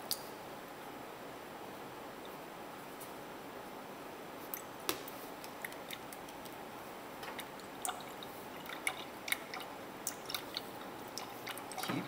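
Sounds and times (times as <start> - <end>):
liquid trickling into glass beaker: 7.3 - 12.0.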